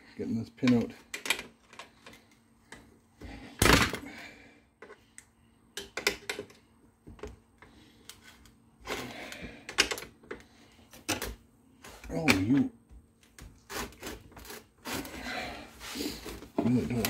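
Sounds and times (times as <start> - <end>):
tools clicking and knocking: 0.6 - 2.2, 5.8 - 7.4, 9.6 - 11.4.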